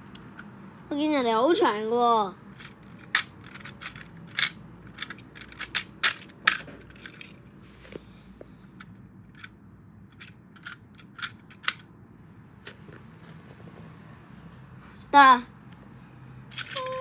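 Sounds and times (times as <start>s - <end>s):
plastic toy trains clicking together: 2.5s - 7.4s, 9.3s - 9.5s, 10.1s - 11.9s, 16.5s - 17.0s.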